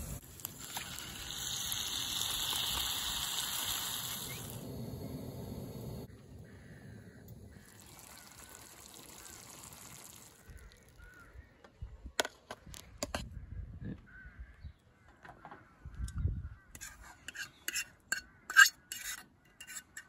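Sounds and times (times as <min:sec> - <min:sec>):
water pouring onto grass: 0:00.2 - 0:04.6, 0:07.6 - 0:11.1
birds calling faintly: 0:04.0 - 0:20.0.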